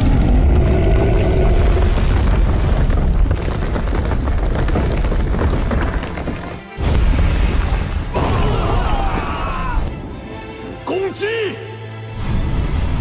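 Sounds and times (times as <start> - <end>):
deep rumbling booms: 0.0 - 8.6
background music: 5.8 - 13.0.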